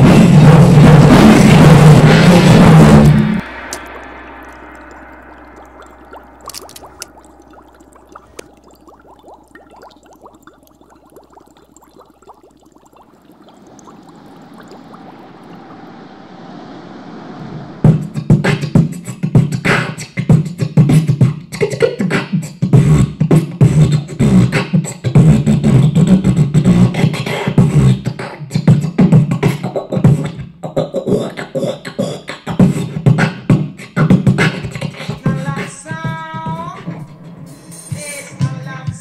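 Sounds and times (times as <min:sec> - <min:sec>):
beatboxing vocal percussion: 0:00.0 - 0:03.4, 0:18.2 - 0:37.0
pitched vocal tune: 0:34.5 - 0:39.0.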